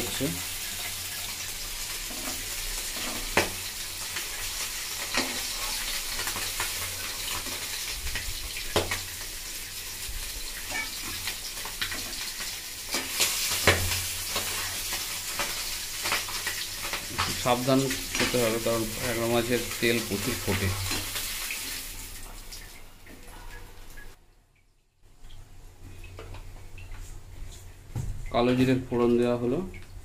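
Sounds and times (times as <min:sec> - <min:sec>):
fish sizzling in hot oil: 0:00.0 - 0:22.7.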